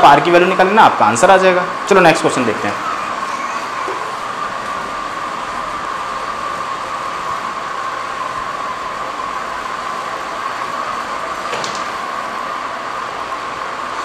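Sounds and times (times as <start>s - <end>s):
high-pitched hum: 1.5s - 11.4s.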